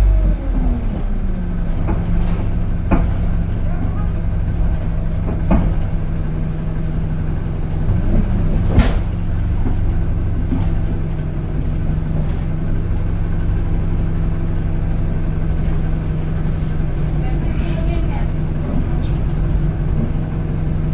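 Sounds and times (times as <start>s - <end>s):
bus engine hum: 0.0s - 20.9s.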